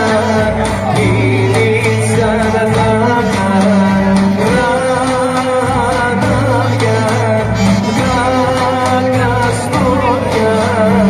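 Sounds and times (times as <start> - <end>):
folk band playing dance tune: 0.0 - 11.0
clarinet melody: 7.4 - 8.9.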